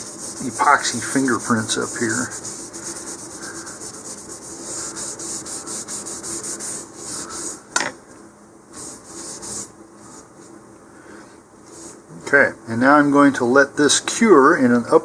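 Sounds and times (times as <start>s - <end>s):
paper towel rubbing on tube: 0.0s - 7.7s, 8.7s - 10.6s, 11.7s - 12.1s.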